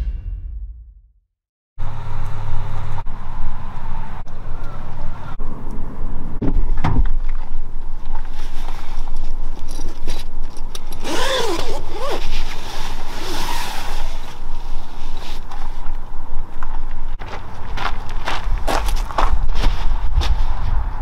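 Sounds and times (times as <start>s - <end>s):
low rumble: 0.0s - 4.3s
zip being pulled open: 11.0s - 14.4s
fabric scraping: 11.1s - 15.8s.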